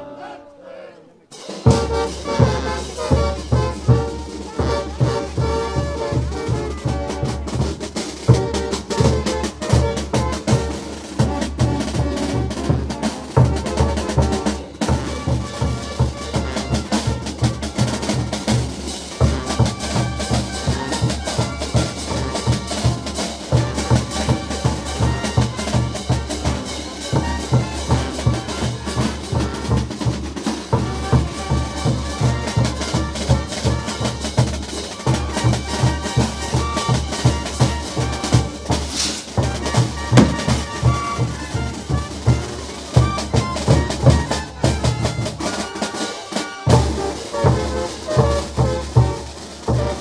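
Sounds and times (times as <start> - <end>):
street brass band playing: 0.0 - 50.0
bass drum beat: 38.2 - 42.1.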